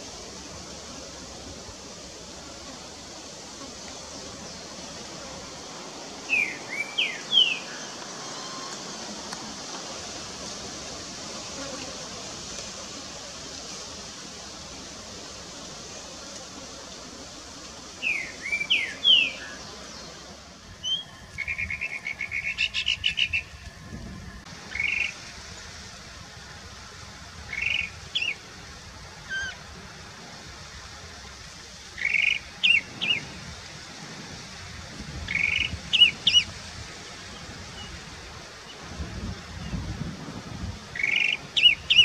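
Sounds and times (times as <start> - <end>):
mockingbird singing whistled notes: 20.8 - 23.5.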